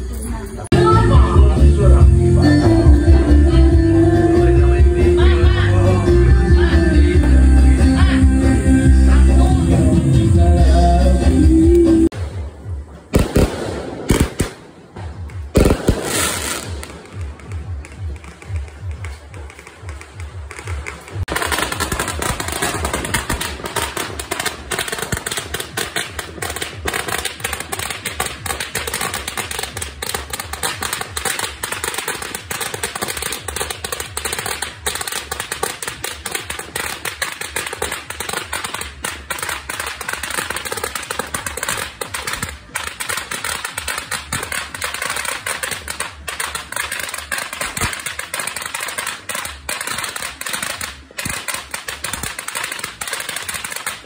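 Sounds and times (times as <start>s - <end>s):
firecrackers popping: 11.7s - 54.0s.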